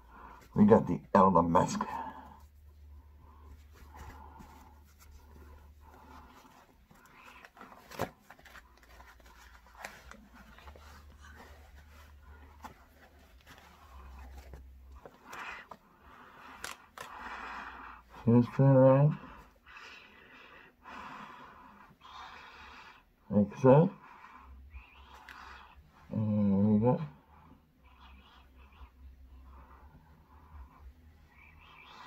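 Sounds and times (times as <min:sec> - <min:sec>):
face mask rustling and scraping: 0:01.6 - 0:18.1.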